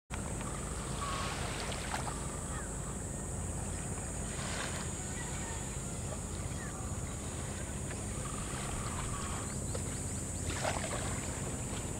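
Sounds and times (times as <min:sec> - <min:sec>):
boat engine rumbling: 0:00.1 - 0:11.9.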